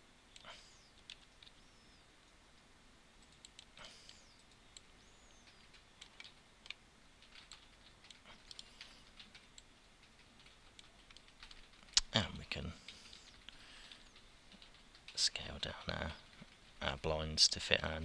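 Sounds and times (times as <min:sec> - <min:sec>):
computer keyboard clicks: 0:03.2 - 0:12.1.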